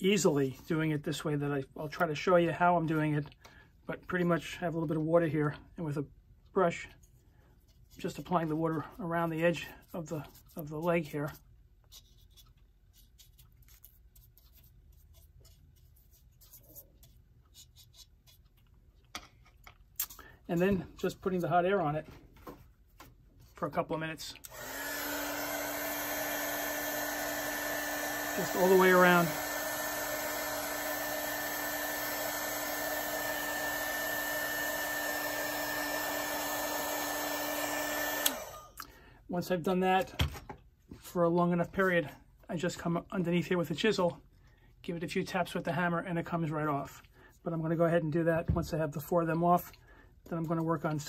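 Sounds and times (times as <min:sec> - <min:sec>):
small brush scratching wood: 0:06.6 - 0:18.8
hot air gun running: 0:24.4 - 0:38.7.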